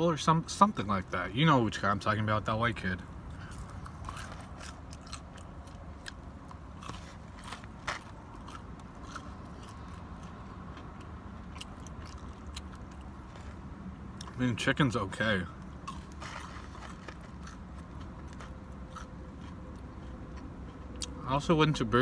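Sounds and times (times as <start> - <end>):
low car hum: 0.0 - 22.0
person chewing crispy food: 3.3 - 14.4, 15.5 - 21.9.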